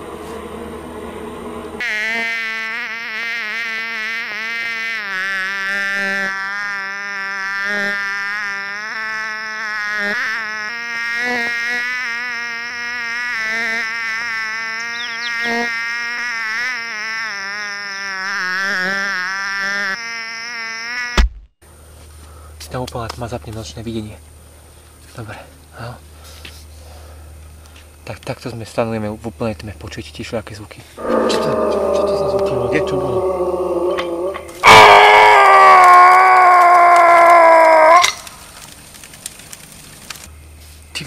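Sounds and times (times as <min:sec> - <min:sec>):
mosquito buzzing: 0:01.8 - 0:21.3, 0:31.0 - 0:35.4.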